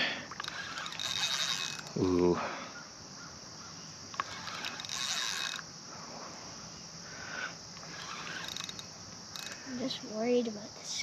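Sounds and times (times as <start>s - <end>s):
fishing reel whirring and clicking: 0.2s - 2.3s, 4.1s - 5.7s, 7.4s - 9.9s.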